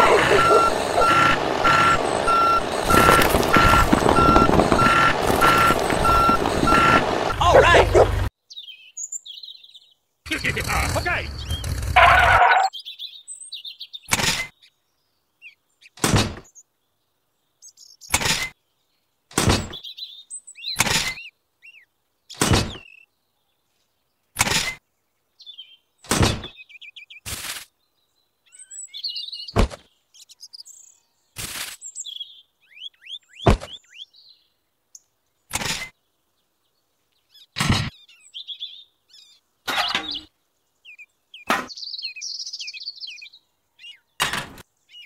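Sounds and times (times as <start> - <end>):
birds chirping faintly: 0.0 - 45.0
objects knocking into plastic trailer: 2.8 - 7.1.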